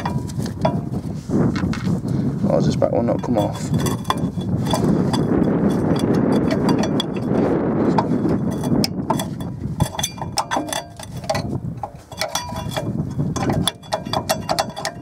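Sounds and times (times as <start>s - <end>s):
metal clicks and clinks: 3.1s - 15.0s.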